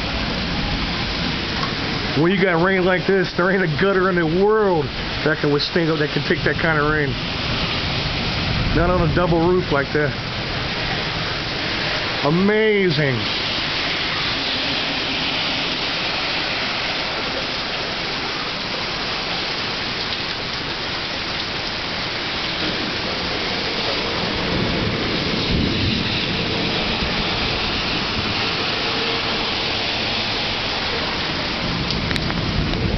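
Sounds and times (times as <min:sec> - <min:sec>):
thunder rumbling: 0:00.0 - 0:32.9
torrential rain pouring: 0:00.0 - 0:32.9.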